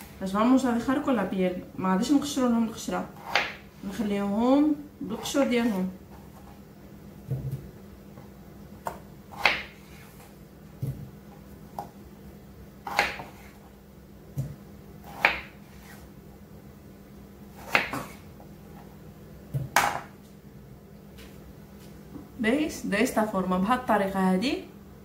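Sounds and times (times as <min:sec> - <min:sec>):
knife cutting potatoes: 0:02.9 - 0:03.6, 0:08.8 - 0:10.3, 0:12.8 - 0:13.7, 0:14.4 - 0:16.1, 0:17.6 - 0:18.2.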